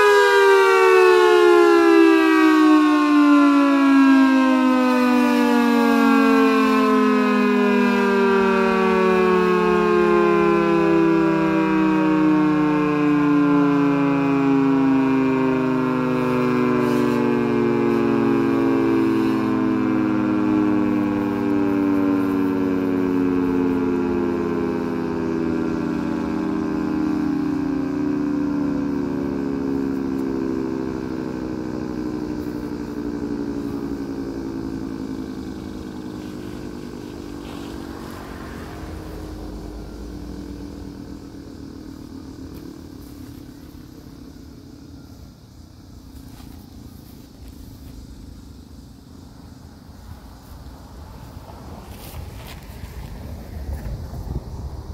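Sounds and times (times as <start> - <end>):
warning siren winding down: 0.0 - 54.9.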